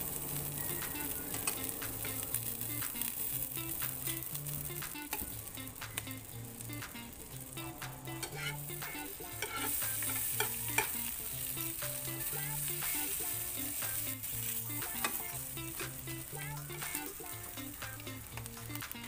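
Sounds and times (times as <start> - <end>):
butter sizzling in a frying pan: 0.0 - 19.0
tongs clicking against pan: 0.8 - 13.1, 13.7 - 19.0.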